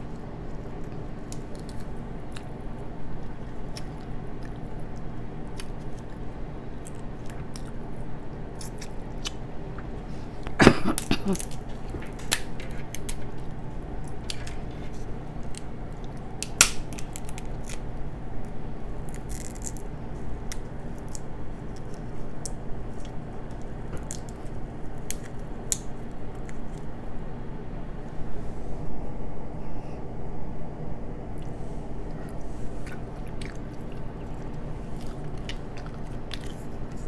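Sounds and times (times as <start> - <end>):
steady low hum: 0.0 - 37.0
crab shells cracking: 0.7 - 2.7, 11.0 - 26.9.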